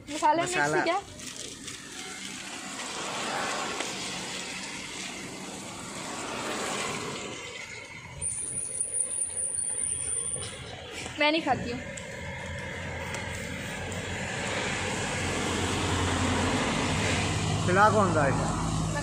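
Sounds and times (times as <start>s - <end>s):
tyre hiss on wet road: 1.2s - 7.6s, 12.8s - 17.7s.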